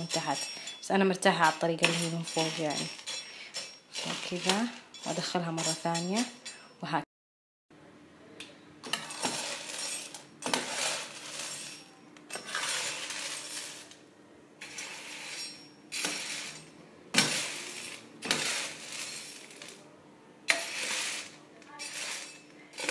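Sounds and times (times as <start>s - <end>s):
coffee beans rattling: 0.0s - 6.0s, 8.9s - 13.9s, 17.2s - 19.8s, 20.5s - 22.9s
metal spatula scraping a tray: 0.0s - 6.4s, 8.9s - 14.0s, 14.6s - 19.8s, 20.5s - 22.9s.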